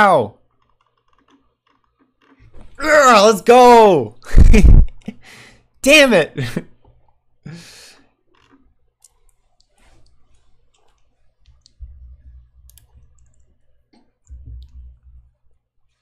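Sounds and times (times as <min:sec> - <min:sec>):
keyboard and mouse clicks: 0:12.5 - 0:13.6.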